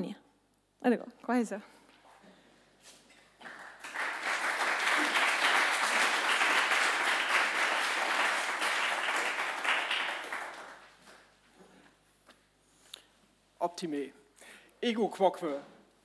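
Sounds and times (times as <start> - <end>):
small audience applauding: 3.2 - 11.4.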